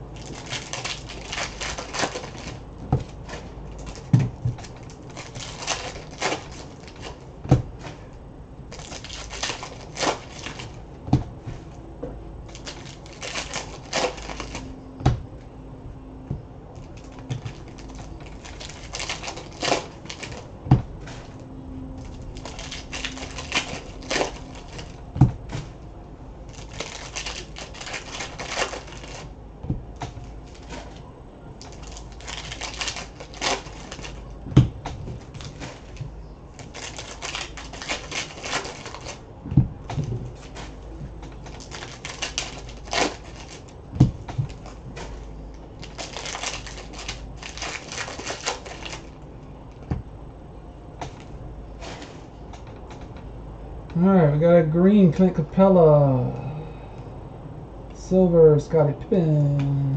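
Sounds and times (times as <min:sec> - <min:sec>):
foil wrappers tearing and crinkling: 0:00.1 - 0:07.2, 0:08.7 - 0:10.8, 0:12.5 - 0:14.8, 0:16.8 - 0:20.5, 0:22.0 - 0:25.0, 0:26.5 - 0:29.4, 0:31.6 - 0:34.3, 0:36.6 - 0:39.2, 0:41.4 - 0:43.8, 0:44.5 - 0:49.2
cards being handled: 0:12.5 - 0:14.8, 0:22.0 - 0:25.8.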